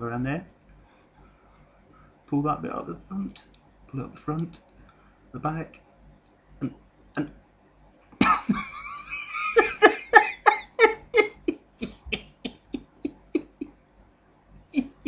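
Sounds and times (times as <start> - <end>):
person laughing hard: 8.2 - 13.7, 14.8 - 15.0.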